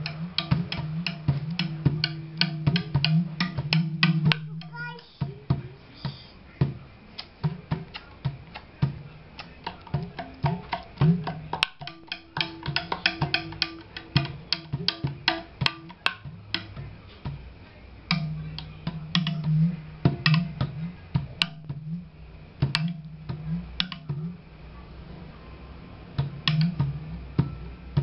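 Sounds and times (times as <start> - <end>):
bamboo zither strings struck: 0.0 - 4.9, 9.4 - 16.8, 18.1 - 20.8, 22.6 - 24.4, 26.2 - 28.0
low resonant bamboo tones: 0.0 - 28.0.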